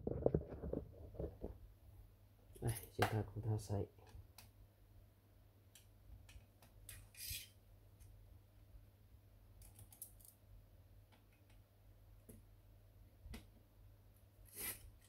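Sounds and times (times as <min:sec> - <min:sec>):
brief scrape: 0:07.1 - 0:07.5, 0:14.5 - 0:14.9.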